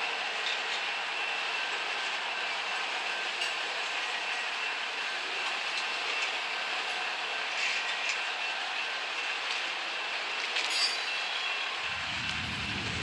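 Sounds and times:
train wheels clattering on rails: 0:00.0 - 0:13.0
high wheel squeal: 0:10.6 - 0:13.0.

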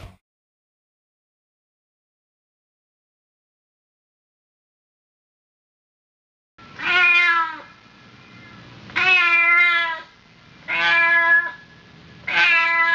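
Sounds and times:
cat meowing: 0:06.8 - 0:07.8, 0:08.9 - 0:10.1, 0:10.7 - 0:12.9.

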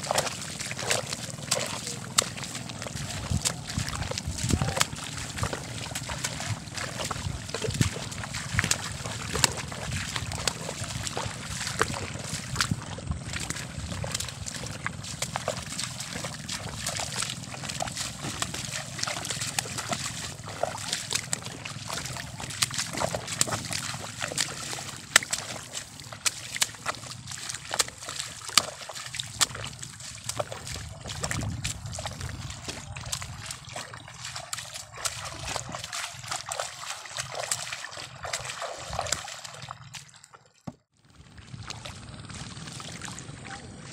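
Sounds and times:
footsteps splashing through mud: 0:00.0 - 0:43.9
seedlings splashing into water: 0:32.0 - 0:40.1.

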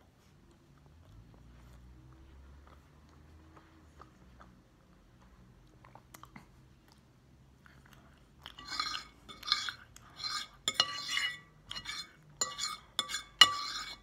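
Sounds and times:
fork scraping ceramic plate: 0:08.5 - 0:14.0
fork clinking on plate: 0:08.6 - 0:14.0.

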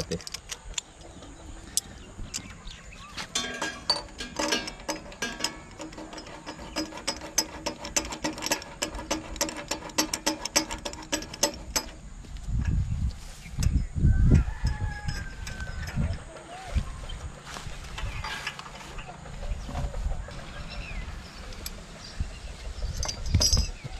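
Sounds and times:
spanner clicking and ratcheting: 0:03.4 - 0:12.8, 0:13.6 - 0:16.4.

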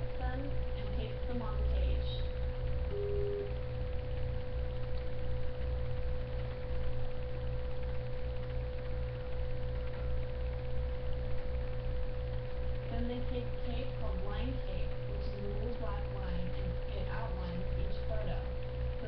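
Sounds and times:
constant steady tone: 0:00.0 - 0:19.0
electrical hum: 0:00.0 - 0:19.0
woman's voice: 0:00.1 - 0:02.3, 0:12.9 - 0:18.5.

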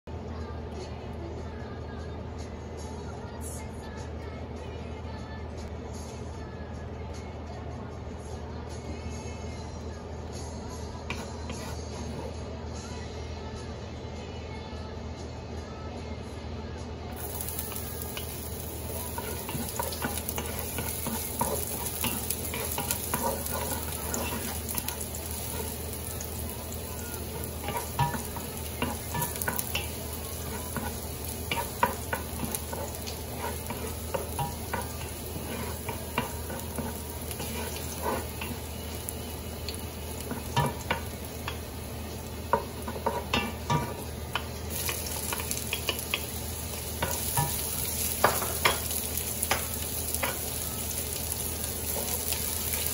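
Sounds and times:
wooden spoon scraping pot: 0:11.1 - 0:12.4, 0:19.1 - 0:38.6
garlic sizzling in hot oil: 0:17.2 - 0:52.9
spoon tapping on pot: 0:27.6 - 0:38.6, 0:40.2 - 0:41.6, 0:42.5 - 0:46.3, 0:48.2 - 0:50.4.

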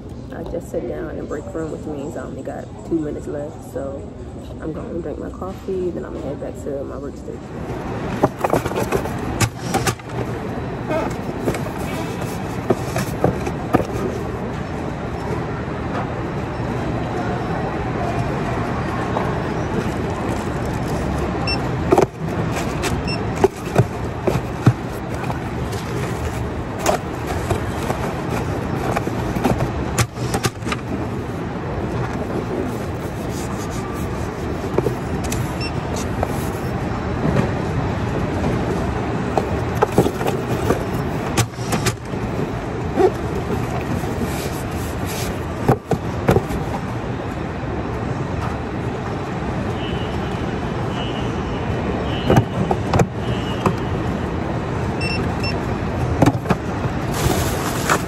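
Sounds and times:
steady warehouse hum: 0:00.0 - 0:49.1
cardboard box knocks and scrapes: 0:08.2 - 0:10.2, 0:10.9 - 0:14.2, 0:21.9 - 0:30.8, 0:43.0 - 0:46.8, 0:56.2 - 0:58.0
plastic bag rustling: 0:19.8 - 0:36.8, 0:57.0 - 0:58.0.

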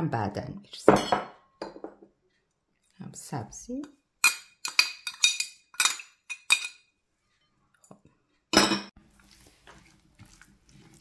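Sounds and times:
spoon clinking against glass dish: 0:04.2 - 0:06.8.

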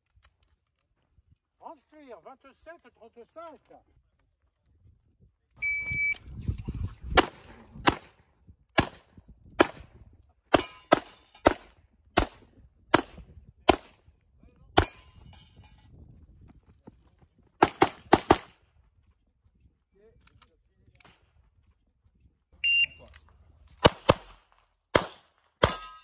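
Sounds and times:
pistol shots: 0:07.2 - 0:08.2, 0:08.8 - 0:09.0, 0:09.6 - 0:09.9, 0:10.5 - 0:13.9, 0:17.6 - 0:18.6, 0:23.7 - 0:25.9.

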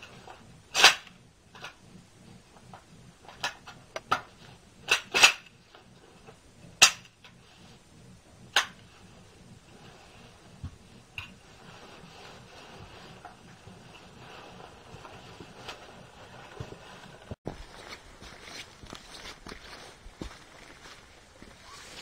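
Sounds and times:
sharp clicks and clacks: 0:00.0 - 0:09.6.

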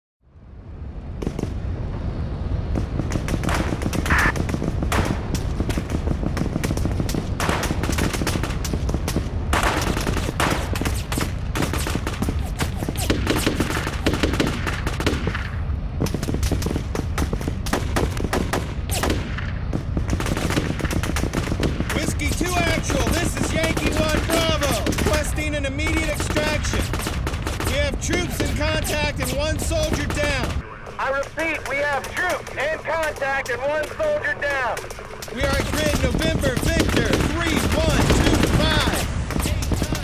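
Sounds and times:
low rumble: 0:00.2 - 0:40.0
automatic gunfire: 0:09.5 - 0:15.5, 0:20.0 - 0:30.6, 0:35.3 - 0:40.0.

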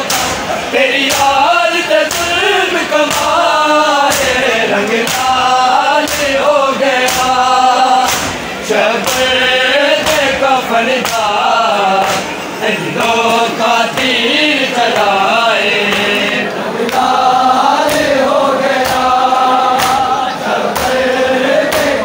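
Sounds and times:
chest-beating slaps: 0:00.0 - 0:03.4, 0:04.0 - 0:09.4, 0:11.0 - 0:11.4, 0:12.0 - 0:12.4, 0:15.9 - 0:22.0
men chanting in unison: 0:00.0 - 0:22.0.

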